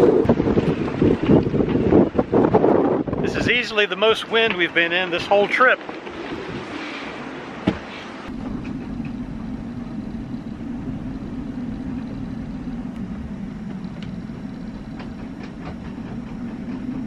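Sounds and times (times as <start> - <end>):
gusty wind low rumble: 0.0 - 17.0
faint clicks and creaks: 8.3 - 17.0.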